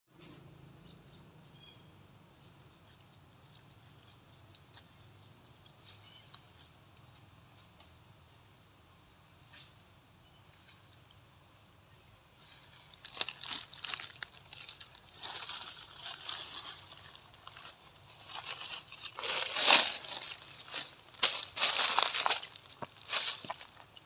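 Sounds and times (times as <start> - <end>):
crackling and rustling: 12.4 - 24.0.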